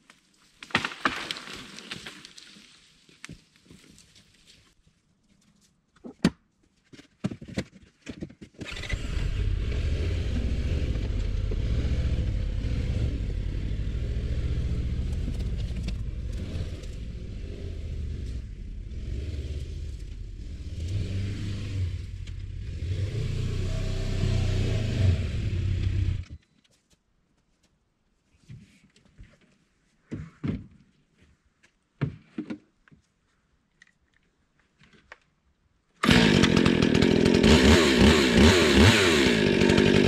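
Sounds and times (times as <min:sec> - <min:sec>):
engine running: 0:08.7 - 0:26.3.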